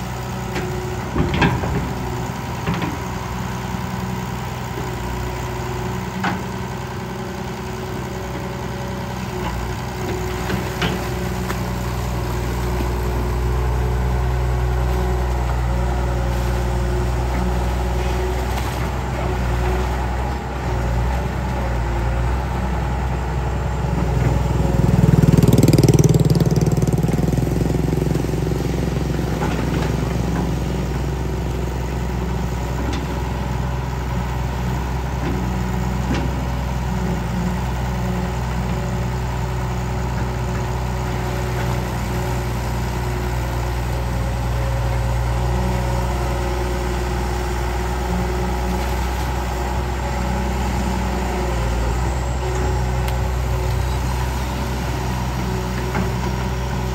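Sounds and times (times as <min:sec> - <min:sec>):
excavator diesel engine running: 0:00.0 - 0:56.9.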